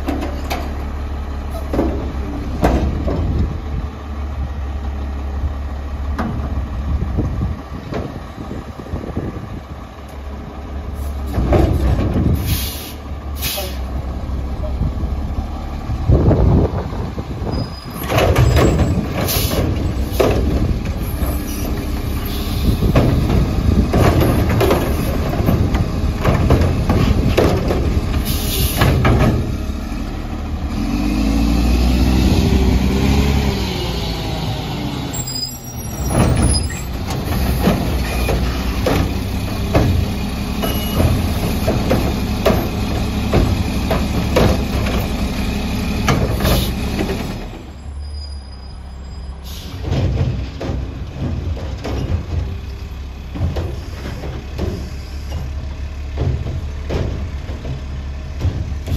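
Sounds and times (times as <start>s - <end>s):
diesel engine revving: 0.0s - 58.9s
metal clanks and bangs: 17.9s - 21.9s, 22.6s - 29.6s, 49.6s - 58.9s.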